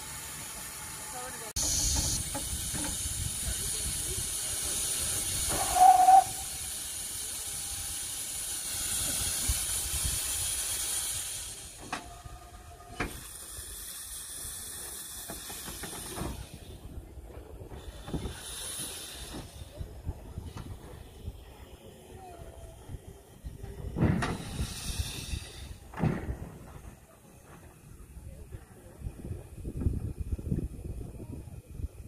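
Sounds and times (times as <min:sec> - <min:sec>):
steam locomotive hissing steam: 0:00.0 - 0:32.0
short high whistle note: 0:05.6 - 0:06.5.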